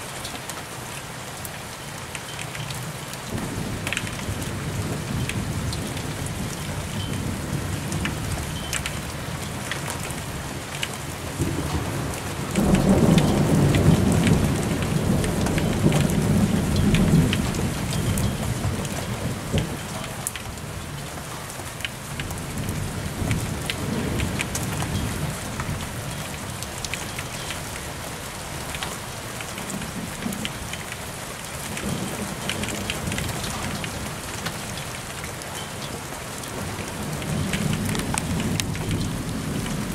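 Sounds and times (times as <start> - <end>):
steady rain: 0.0 - 39.9
raindrops ticking: 0.1 - 39.9
thunder rumbling: 11.2 - 20.2, 36.6 - 39.9.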